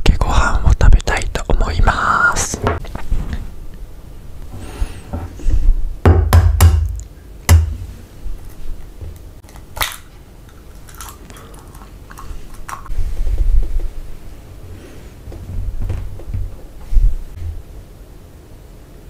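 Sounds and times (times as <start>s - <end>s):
eggshell crackling: 8.4s - 12.9s.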